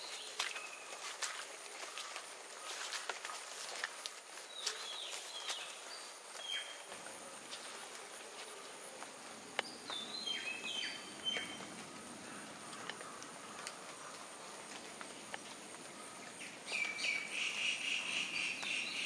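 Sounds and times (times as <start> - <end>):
water drops falling from leaves: 0.0 - 4.8.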